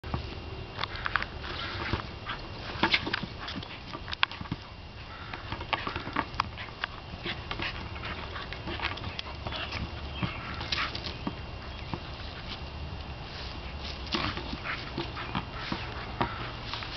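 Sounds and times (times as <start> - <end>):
teeth and paws clicking on ball: 0.8 - 12.6, 13.9 - 16.9.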